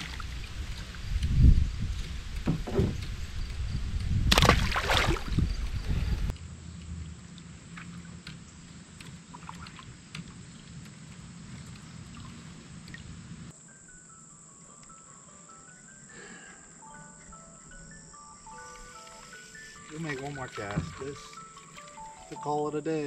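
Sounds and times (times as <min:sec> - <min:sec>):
water sloshing around a kayak: 0:00.0 - 0:13.5, 0:18.7 - 0:22.6
water trickling: 0:06.4 - 0:13.5, 0:18.4 - 0:22.9.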